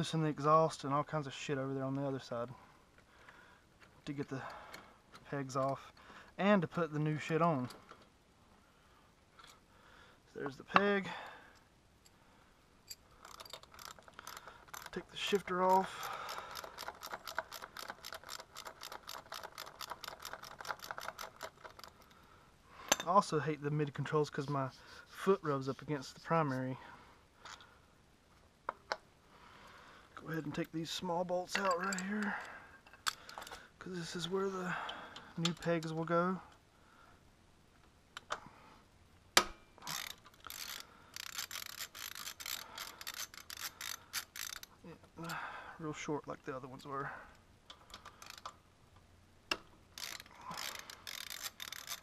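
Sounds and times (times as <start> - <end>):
ratchet wrench clicking: 12.9 - 22.0, 39.8 - 44.8, 47.7 - 48.5, 49.9 - 52.0.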